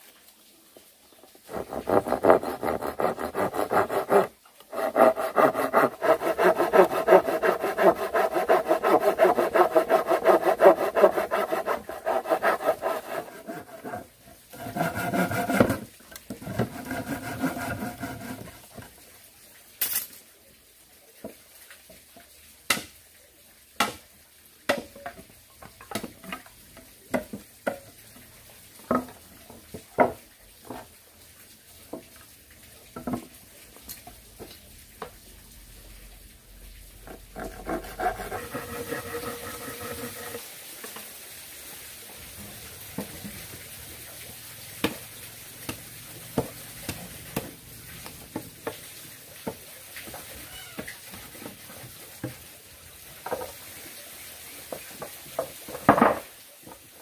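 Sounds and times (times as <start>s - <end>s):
hand saw sawing wood: 1.5s - 18.7s, 37.0s - 40.4s.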